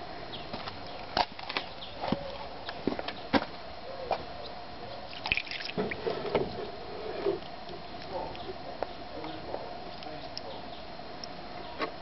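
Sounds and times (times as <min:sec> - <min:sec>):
water dripping: 0:05.1 - 0:05.9.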